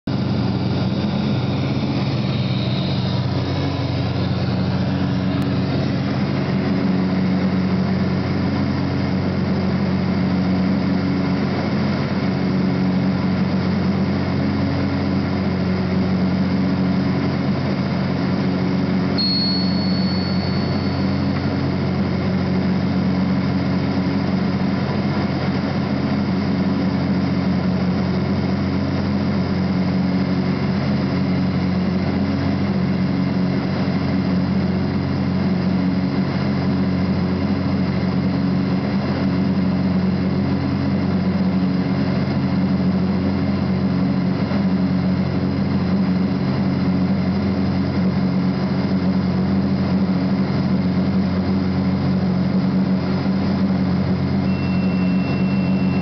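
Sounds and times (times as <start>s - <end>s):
propeller aircraft engine drone: 0.1s - 56.0s
thin high tone: 19.2s - 21.6s, 54.4s - 56.0s.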